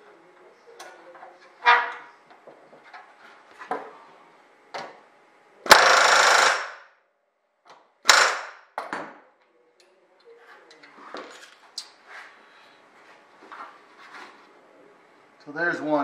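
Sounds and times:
pneumatic rivet gun hammering: 5.7 - 6.8, 8.1 - 8.6.

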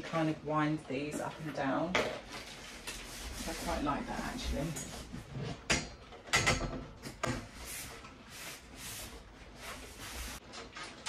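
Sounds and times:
metal frame scraping and rustling: 1.4 - 5.8, 7.0 - 11.0
metal frame knocks and clicks: 5.5 - 7.4.

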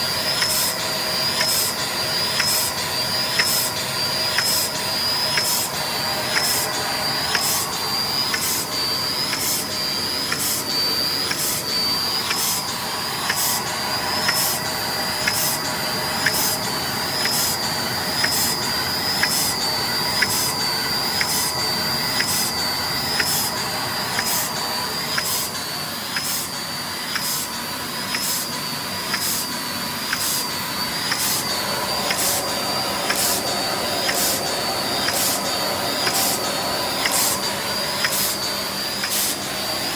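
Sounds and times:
machine whirring and whining: 0.0 - 39.9
regular machine clicks: 0.2 - 20.6, 21.2 - 21.6, 22.2 - 22.5, 23.1 - 26.5, 31.0 - 35.4, 36.0 - 38.4, 39.0 - 39.4.

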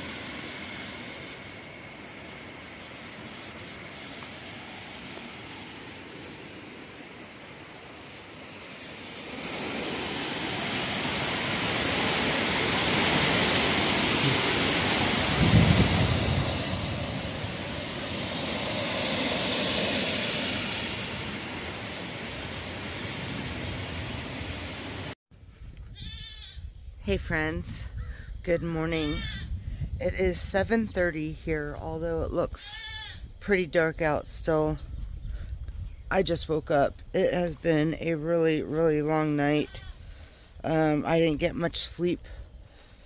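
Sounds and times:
heavy rain: 0.0 - 25.2
hurricane wind: 0.0 - 43.0.

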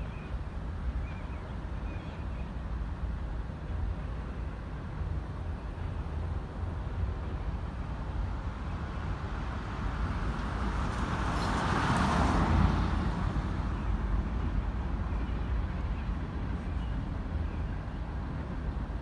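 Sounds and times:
vehicle passing by: 9.9 - 13.8.

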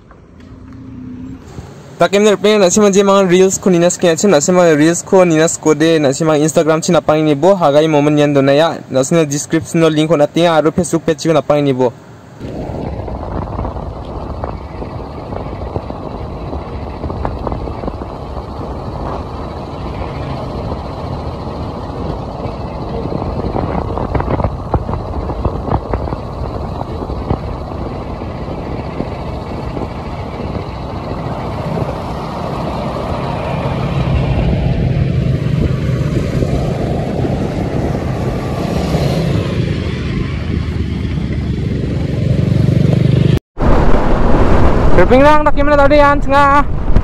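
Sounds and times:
motorcycle engine running: 12.4 - 43.4
wind rushing over microphone: 12.4 - 47.0.

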